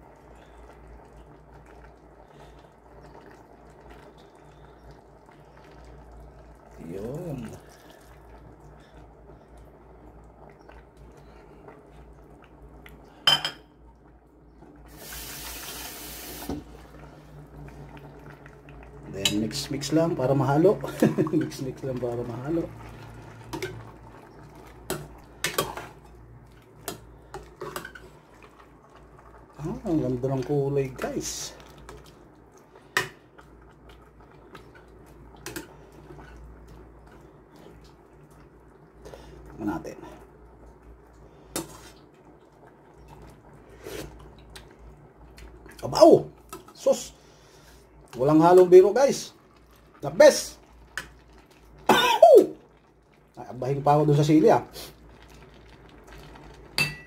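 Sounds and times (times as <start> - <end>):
low steady hum: 0.0 - 57.0
dishware clinking: 13.3 - 13.6, 56.8 - 57.0.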